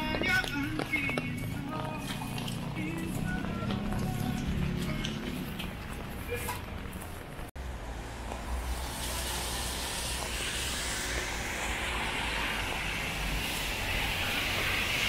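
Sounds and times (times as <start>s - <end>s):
traffic on wet road: 0.2s - 15.0s
rain hissing: 8.0s - 15.0s.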